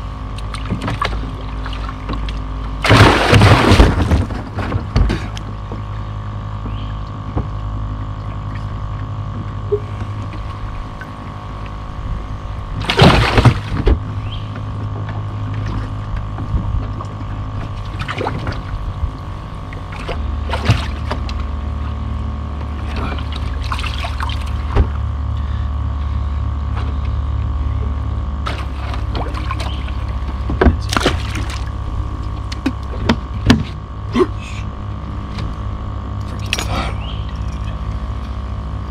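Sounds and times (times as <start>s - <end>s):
boat motor hum: 0.0s - 38.9s
fish splashing into water: 0.4s - 4.4s, 12.8s - 13.8s, 22.9s - 24.8s, 28.4s - 31.8s.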